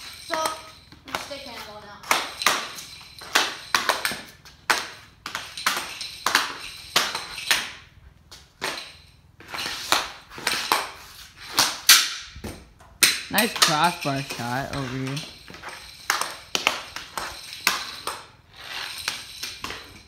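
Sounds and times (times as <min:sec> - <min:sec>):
hockey stick clacking puck on concrete: 0:00.0 - 0:20.0
puck scraping on concrete: 0:00.0 - 0:20.0.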